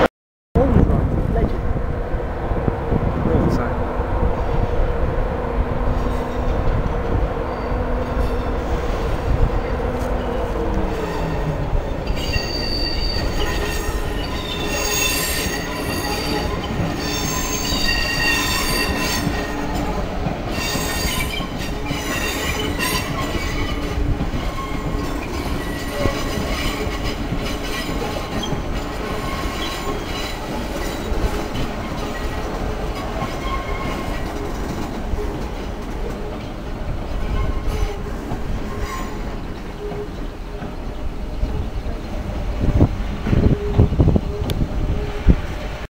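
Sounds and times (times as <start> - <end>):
wheels rumbling on rail: 0.6 - 45.9
train wheels squealing: 9.6 - 34.5, 37.1 - 40.7.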